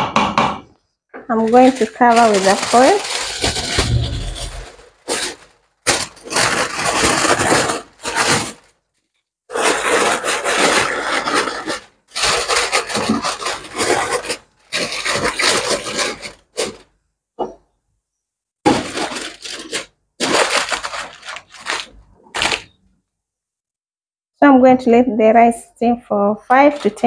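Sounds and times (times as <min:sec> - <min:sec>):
aluminium foil crinkling: 0:01.3 - 0:16.9, 0:18.7 - 0:22.8, 0:26.5 - 0:27.0.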